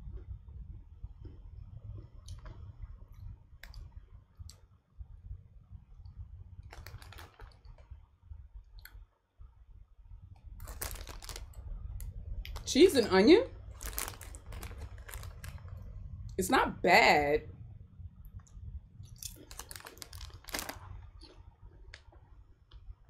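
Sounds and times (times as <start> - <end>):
crisps being chewed: 1.2 - 2.8, 6.7 - 7.8, 10.6 - 12.8, 13.7 - 15.9, 19.0 - 21.4
crisp packet crinkling: 6.7 - 7.8, 10.6 - 11.6, 12.5 - 13.1, 13.7 - 15.8, 19.2 - 21.4.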